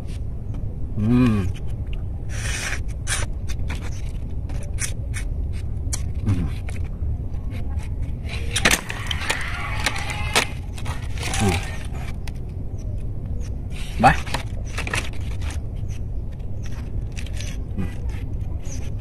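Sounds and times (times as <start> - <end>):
person humming: 1.0 - 1.6
wet chewing and lip-smacking: 4.7 - 6.9.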